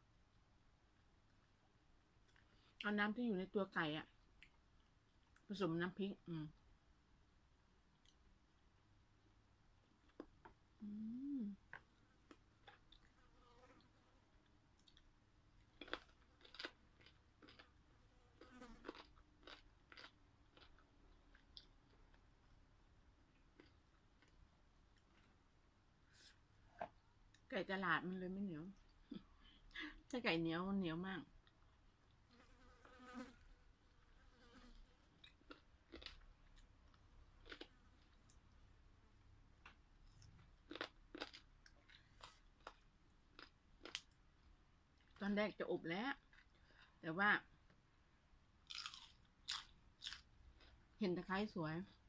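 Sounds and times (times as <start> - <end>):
person chewing: 10.0 - 13.2, 14.4 - 22.3, 23.4 - 25.4, 35.1 - 38.6, 39.6 - 44.2, 48.6 - 50.8.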